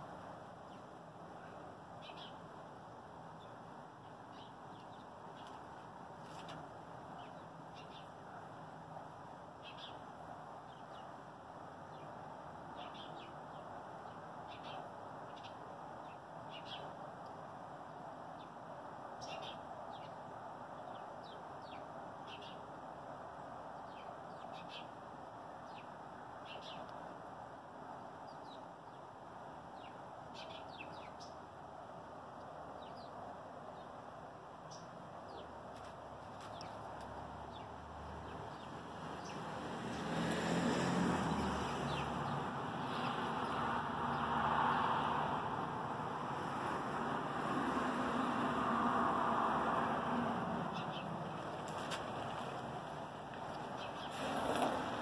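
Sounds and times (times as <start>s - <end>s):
small birds chirping: 0.7s - 2.5s, 3.3s - 8.4s, 9.6s - 10.0s, 11.9s - 17.0s, 19.2s - 20.2s, 20.8s - 22.7s, 23.8s - 25.0s, 25.6s - 27.0s, 29.7s - 31.4s, 34.6s - 35.6s, 36.3s - 40.1s, 41.1s - 44.3s, 50.6s - 52.6s, 53.4s - 54.3s.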